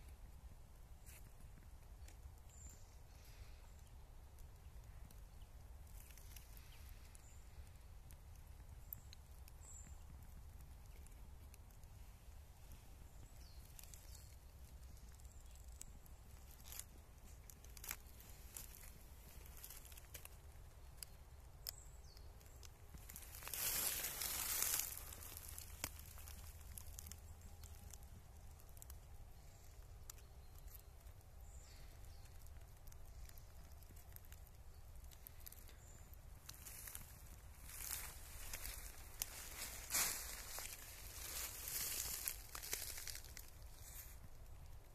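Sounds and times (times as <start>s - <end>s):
soft rustles: 22.9s - 27.2s, 36.4s - 44.3s.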